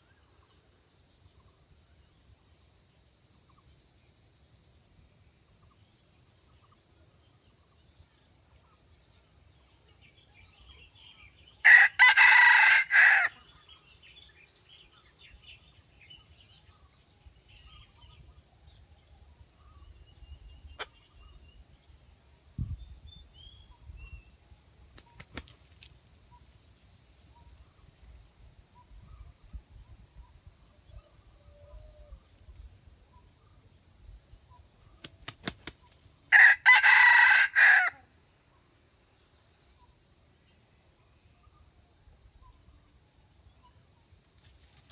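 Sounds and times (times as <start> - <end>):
rooster crowing: 11.6 - 13.4, 36.3 - 38.0
wing flurry: 24.9 - 26.2, 35.0 - 36.1.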